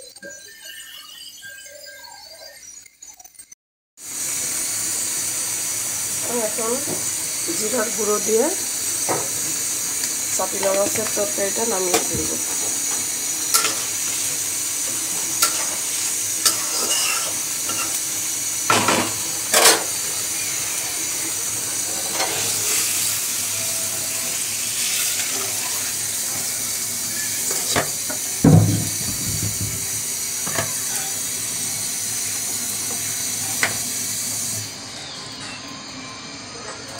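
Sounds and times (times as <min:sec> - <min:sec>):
curry sizzling in a pan: 0:04.0 - 0:34.8
metal spatula scraping a pan: 0:13.5 - 0:14.3, 0:15.4 - 0:18.0
heavy knock: 0:28.4 - 0:30.0.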